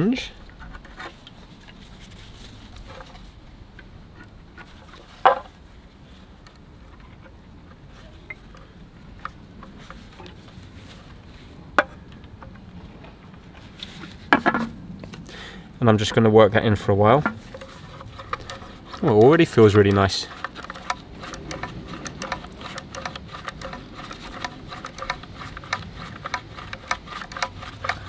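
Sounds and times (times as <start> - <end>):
faint steady hum: 0.0 - 28.0
sharp clicks: 17.6 - 28.0.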